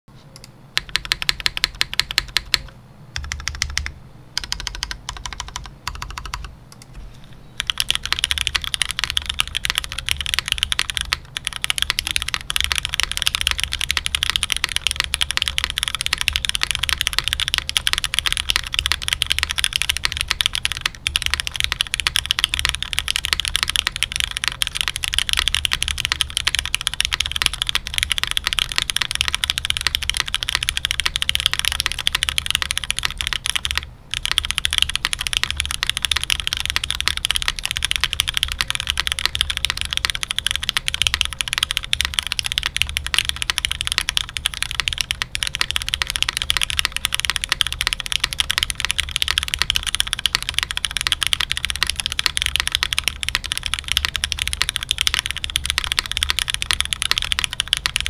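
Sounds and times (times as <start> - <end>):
mechanical keyboard typing: 0.4 - 7.0, 7.6 - 58.0.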